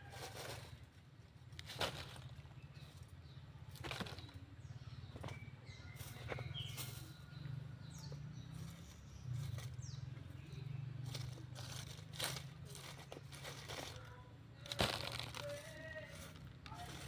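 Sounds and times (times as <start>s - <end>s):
rustling and scraping: 0.0s - 4.4s, 5.0s - 17.0s
bird chirps: 2.2s - 11.7s.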